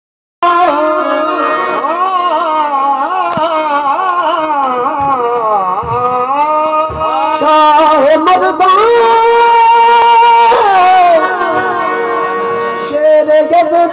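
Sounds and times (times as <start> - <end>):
harmonium chords: 0.4 - 13.9
man singing: 0.4 - 13.9
low thumps: 4.7 - 8.0.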